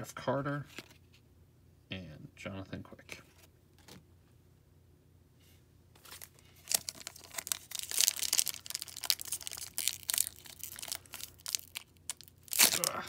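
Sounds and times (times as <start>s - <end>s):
foil wrapper tearing and crinkling: 6.1s - 13.0s.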